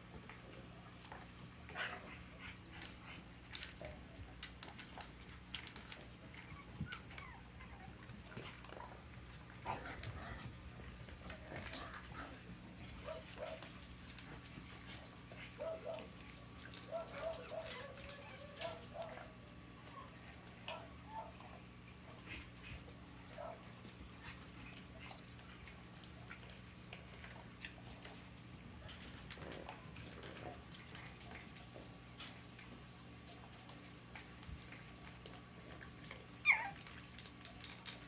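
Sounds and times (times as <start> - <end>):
puppies scuffling: 0.0 - 38.0
puppy whimpers: 36.4 - 36.8.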